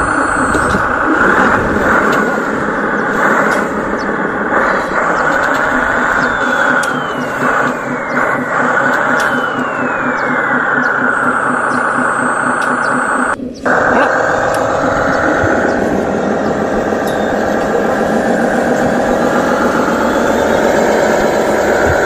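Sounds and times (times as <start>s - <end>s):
model truck motor droning: 0.0s - 22.0s.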